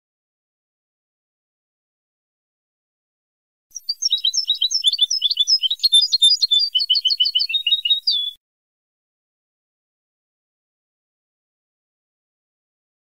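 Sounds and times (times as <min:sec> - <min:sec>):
goldfinch song chirps and trills: 0:03.8 - 0:08.4.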